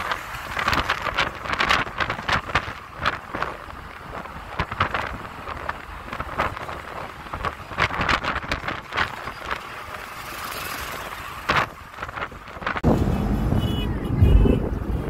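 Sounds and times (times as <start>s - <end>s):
road noise inside moving vehicle: 0.0s - 15.0s.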